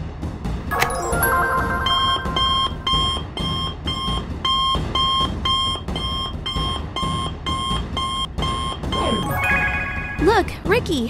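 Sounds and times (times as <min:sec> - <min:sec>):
electronic alert beeping: 0:00.7 - 0:04.1.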